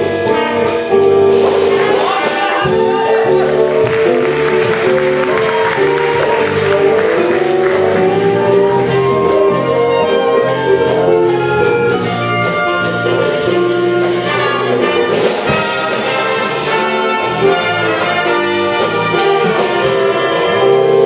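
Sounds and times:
wind band playing: 0.0 - 21.0.

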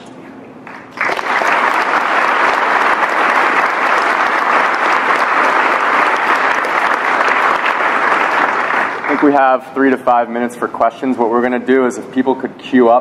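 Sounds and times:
audience applauding: 0.7 - 9.5.

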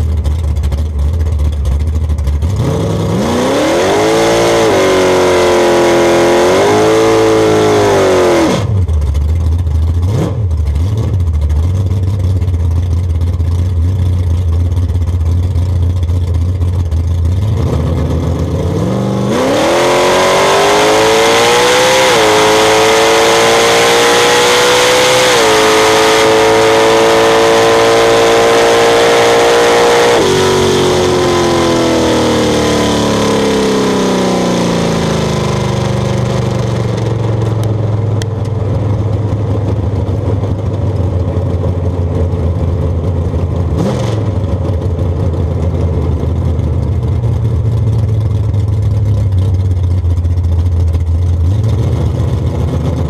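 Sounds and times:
racing engine at high revs: 2.4 - 8.9, 10.0 - 11.2, 17.3 - 37.8, 43.7 - 44.8.

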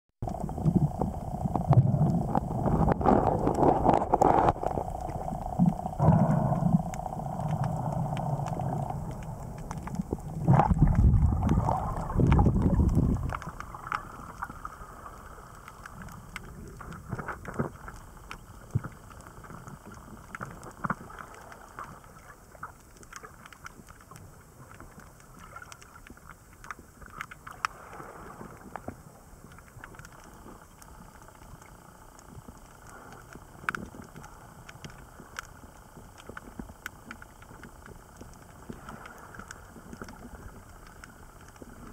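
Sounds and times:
faint clicks and crackles: 0.2 - 41.9
low rumbling underwater noise: 0.2 - 41.9.

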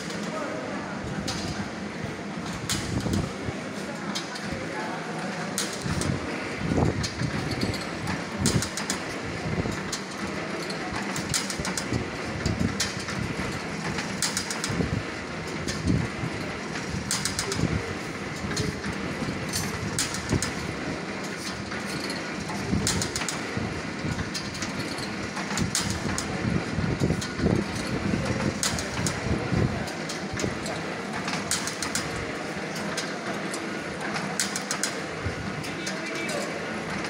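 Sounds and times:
mill machinery din: 0.0 - 37.0
sharp clacks and clicks: 7.0 - 14.9, 16.7 - 17.8, 21.2 - 29.3, 29.9 - 35.0.

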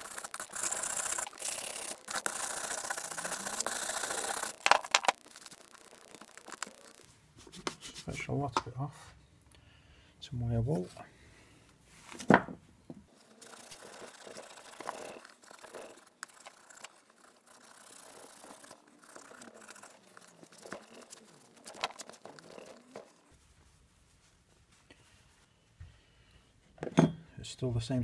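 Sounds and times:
wire wool rubbing on metal: 0.0 - 8.2, 13.1 - 23.4.

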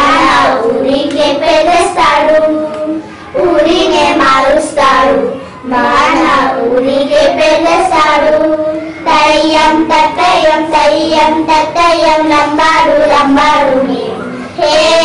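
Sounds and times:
children singing folk song: 0.0 - 15.0.

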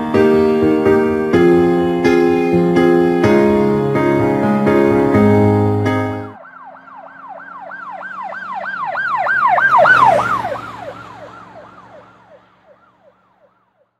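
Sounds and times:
emergency siren yelping: 6.3 - 13.9.

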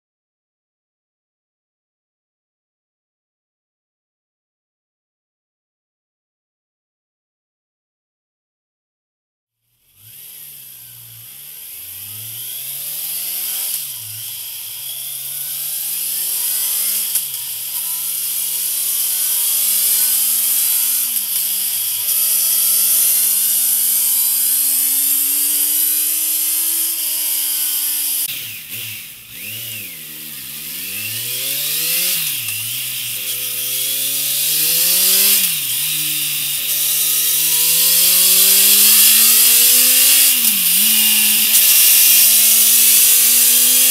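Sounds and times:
motorcycle engine revving: 9.8 - 43.9.

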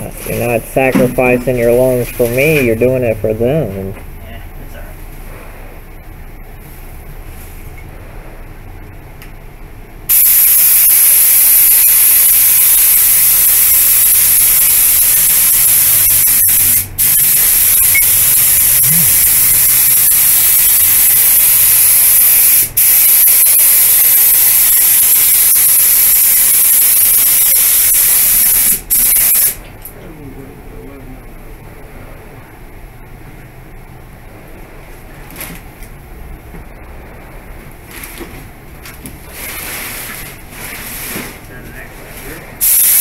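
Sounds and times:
spray gun hissing: 10.1 - 29.6, 42.6 - 43.0.

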